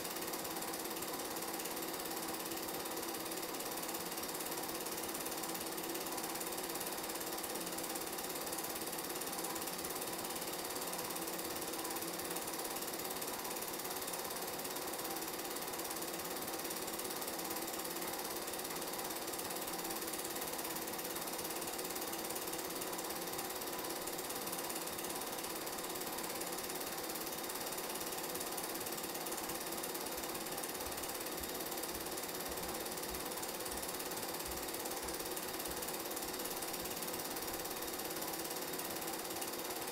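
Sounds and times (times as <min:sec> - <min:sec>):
film projector clattering: 0:00.0 - 0:39.9.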